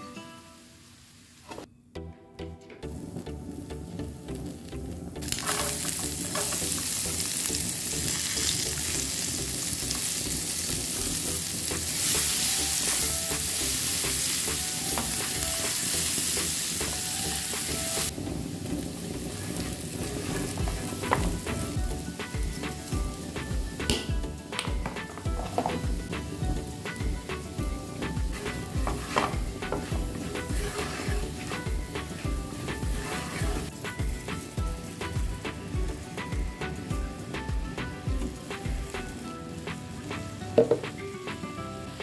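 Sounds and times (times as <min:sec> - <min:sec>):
butter and garlic sizzling in pan: 0:00.1 - 0:01.5, 0:03.2 - 0:42.0
spatula stirring in pan: 0:05.3 - 0:07.2, 0:11.6 - 0:23.7, 0:25.0 - 0:35.6.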